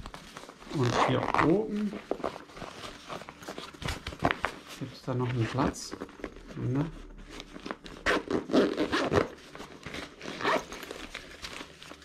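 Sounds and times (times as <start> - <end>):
bag zipper being pulled open: 8.0 - 9.4, 10.2 - 10.8.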